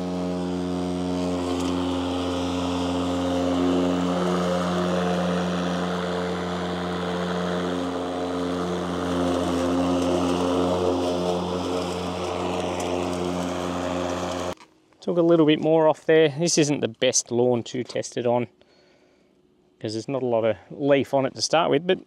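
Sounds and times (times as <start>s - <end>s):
electric lawn mower cutting grass: 0.0s - 14.6s.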